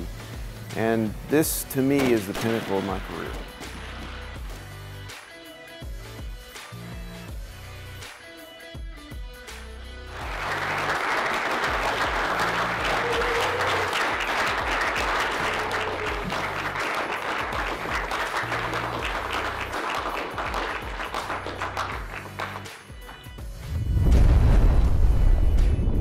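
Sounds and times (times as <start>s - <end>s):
background music: 0.0s - 26.0s
audience applauding: 10.1s - 23.4s.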